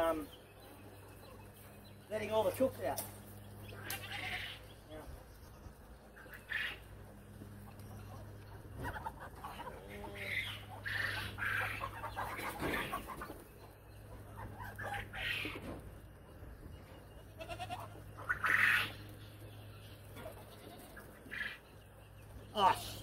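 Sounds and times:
chickens clucking: 0.0 - 23.0
steady low hum: 0.0 - 23.0
goats bleating: 3.6 - 4.8, 17.2 - 19.0, 20.2 - 21.5.

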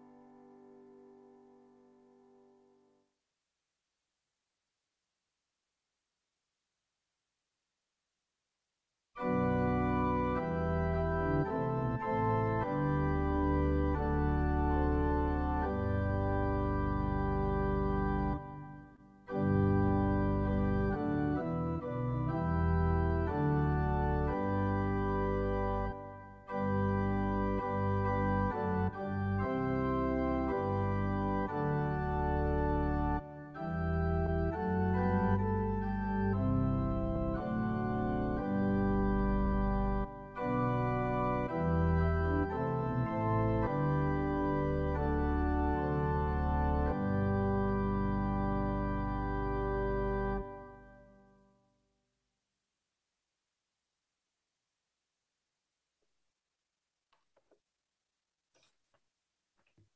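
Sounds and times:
organ playing held chords: 9.2 - 51.4.

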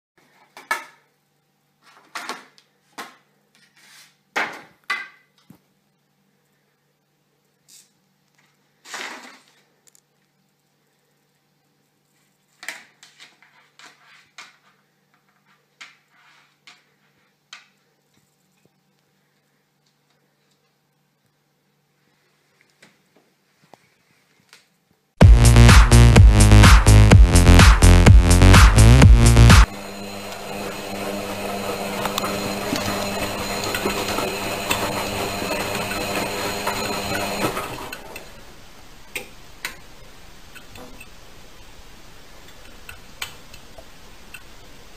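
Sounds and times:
drum ticking: 25.2 - 29.7
electronic dance music: 25.2 - 37.9
washing machine running: 25.2 - 39.0.

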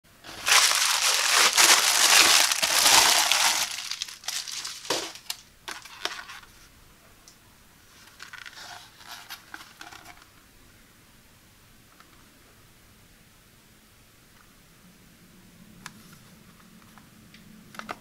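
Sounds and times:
blister pack crinkling: 0.2 - 6.4
plastic mailer tearing and crinkling: 0.2 - 6.4.

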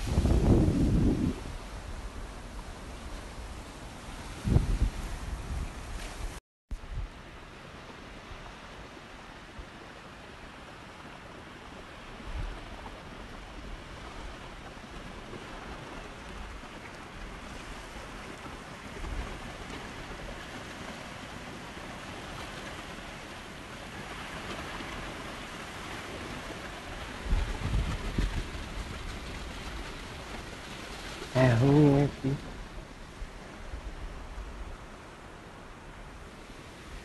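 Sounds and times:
waves breaking on sand: 0.0 - 6.4, 7.4 - 37.0
wind rumbling on microphone: 0.0 - 37.0.

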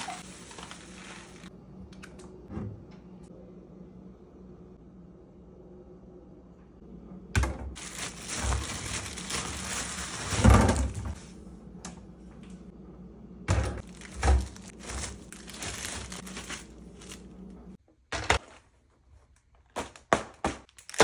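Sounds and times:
plastic bags crinkling: 0.0 - 1.5, 7.8 - 11.1, 13.8 - 17.5.

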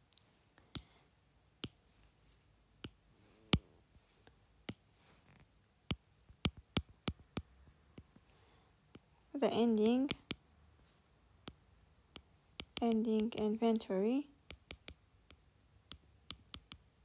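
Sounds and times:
stylus tapping on glass screen: 5.9 - 8.1, 11.4 - 13.0.

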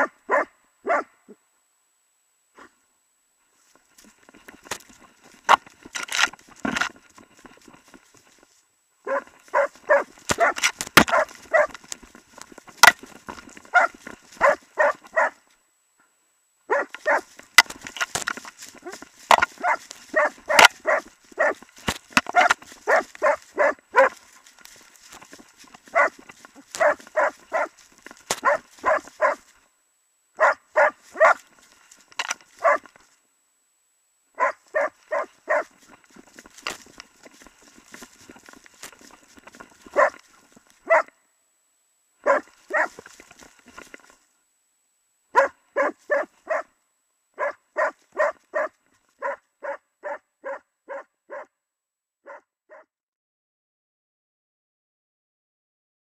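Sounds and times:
dog barking: 0.0 - 1.3, 9.0 - 11.8, 13.7 - 15.4, 16.7 - 17.3, 19.6 - 21.6, 22.3 - 24.2, 25.9 - 26.2, 26.8 - 27.8, 28.4 - 29.4, 30.4 - 31.5, 32.6 - 32.9, 34.4 - 35.8, 39.9 - 40.2, 40.8 - 41.1, 42.2 - 43.1, 45.3 - 46.7, 47.4 - 51.6, 52.2 - 52.9.

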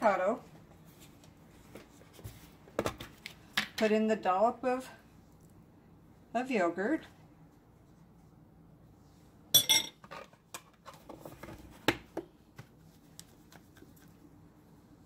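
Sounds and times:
cutlery clinking against ceramic bowl: 9.6 - 10.0.

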